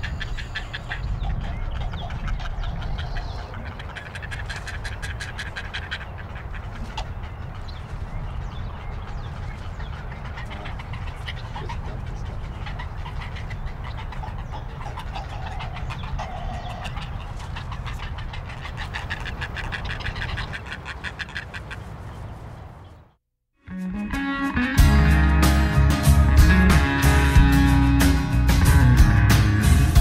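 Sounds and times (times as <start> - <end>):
rapid animal calls: 0.0 - 22.3.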